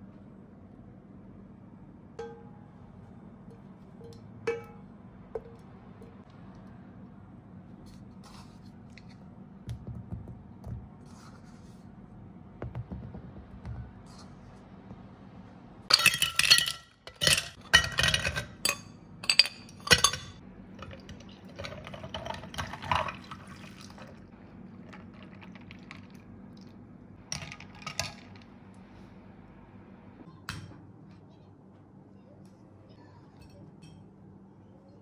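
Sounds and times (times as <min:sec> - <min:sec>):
milk poured over ice: 0:20.9 - 0:26.7.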